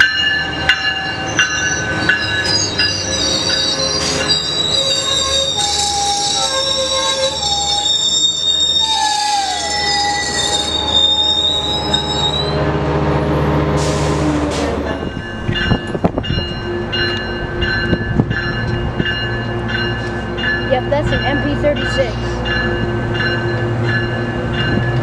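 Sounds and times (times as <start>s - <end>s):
train wheels squealing on rails: 0.0s - 12.7s.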